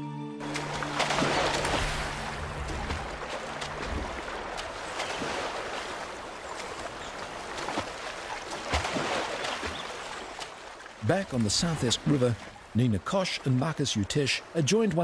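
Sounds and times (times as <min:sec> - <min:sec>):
river water running: 0:00.4 - 0:15.0
small water splashes: 0:00.4 - 0:15.0.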